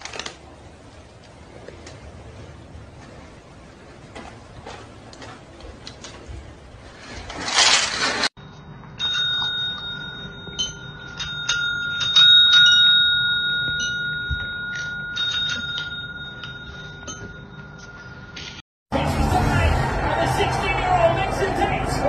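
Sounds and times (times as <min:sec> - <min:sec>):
service bell dinging: 0:08.4 - 0:18.6.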